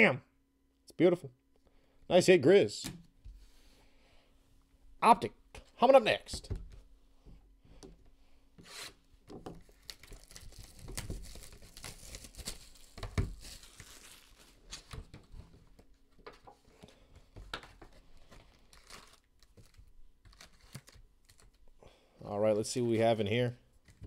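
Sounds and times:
plastic wrapping crinkling and tearing: 9.6 - 15.2, 18.2 - 21.6.

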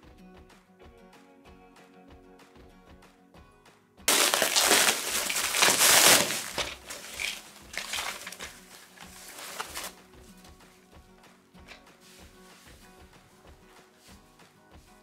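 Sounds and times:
foam packing sheet rustling: 4.1 - 10.0.

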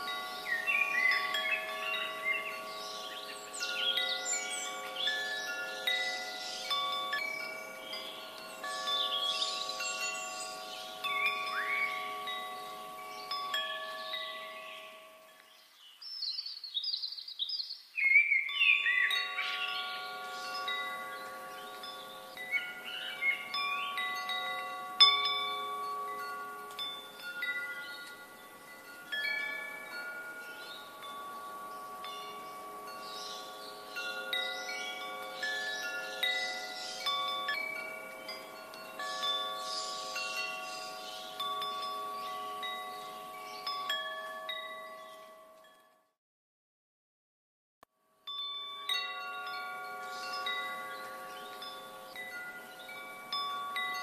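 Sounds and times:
wind chimes ringing: 0.0 - 16.4, 18.0 - 46.2, 48.1 - 54.0.

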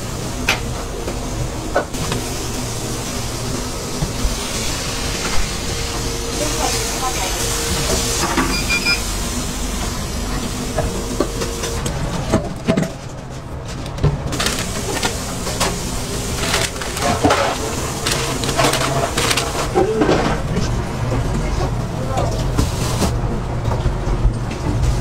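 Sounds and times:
steady background hum: 0.0 - 25.0
paper rustling: 14.3 - 20.1.

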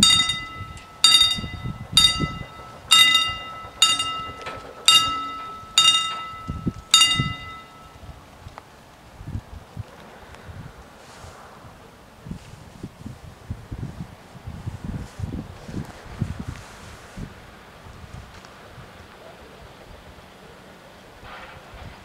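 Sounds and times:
level crossing warning bell: 0.0 - 8.1.

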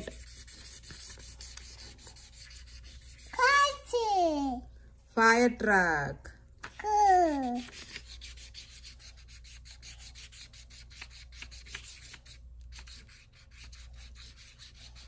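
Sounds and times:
marker scribbling on paper: 0.0 - 3.9, 7.2 - 15.0.

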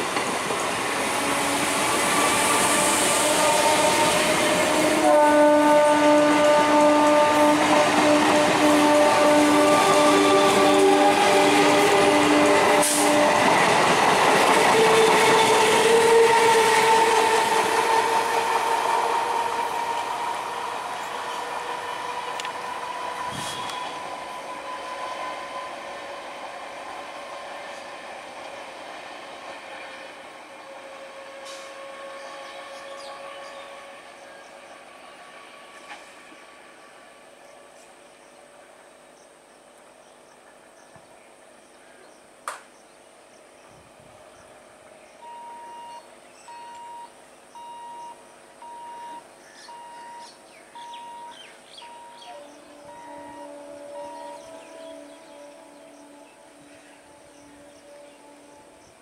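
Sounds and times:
train wheels on rails: 0.0 - 38.2
electric train whine: 0.0 - 41.5, 43.6 - 59.0
electronic beeps: 45.3 - 52.2
birds chirping: 49.0 - 58.9.

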